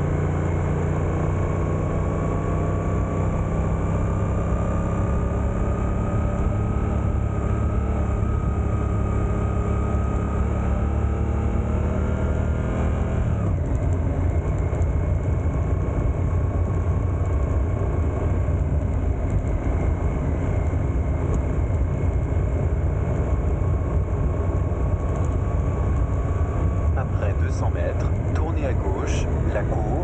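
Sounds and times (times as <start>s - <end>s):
motorcycle engine accelerating: 0.0s - 30.0s.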